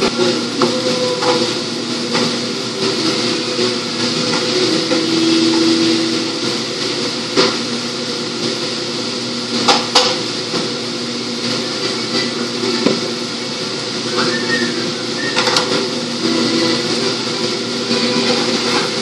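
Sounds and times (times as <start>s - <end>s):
kitchen equipment hum: 0.0s - 19.0s.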